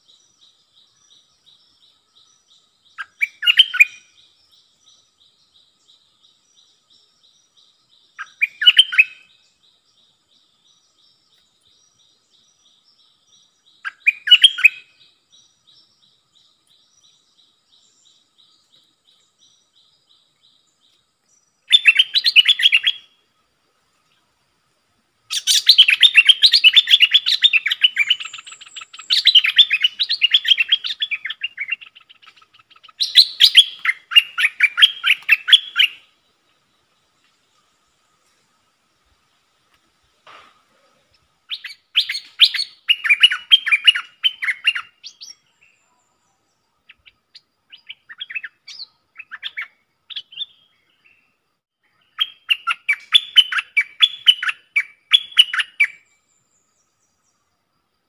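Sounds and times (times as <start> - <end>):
bulbul song: 13.8 - 15.9, 21.6 - 23.3, 25.3 - 36.3, 41.5 - 51.2, 51.8 - 57.3.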